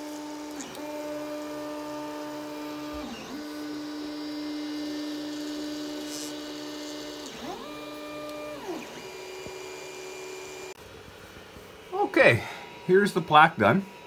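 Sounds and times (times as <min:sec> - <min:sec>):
stepper motors whining: 0:00.0 - 0:10.8.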